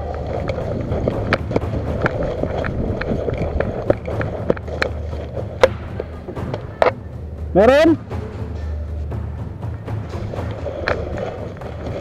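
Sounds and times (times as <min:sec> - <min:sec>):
gear rattling: 0:00.0 - 0:07.0.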